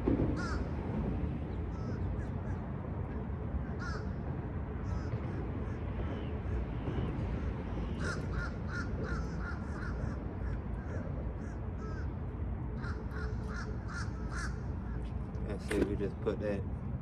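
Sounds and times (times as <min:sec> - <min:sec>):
steady low rumble: 0:00.0 - 0:17.0
crows cawing: 0:00.4 - 0:00.7, 0:01.7 - 0:04.2, 0:04.8 - 0:05.8, 0:07.8 - 0:12.2, 0:12.8 - 0:15.1.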